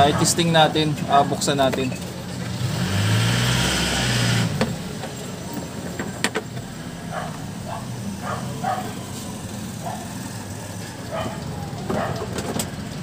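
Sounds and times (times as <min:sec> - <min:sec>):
traffic noise: 0:00.0 - 0:13.0
vehicle engine passing by: 0:02.2 - 0:05.8, 0:06.7 - 0:13.0.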